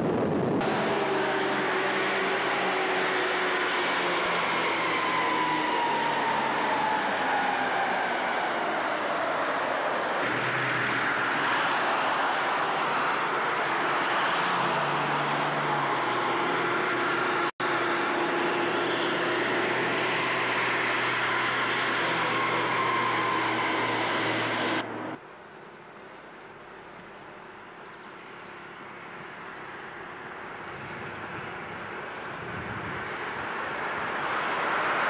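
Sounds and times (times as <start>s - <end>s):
heavy machinery droning: 0.0s - 7.9s, 10.2s - 25.2s.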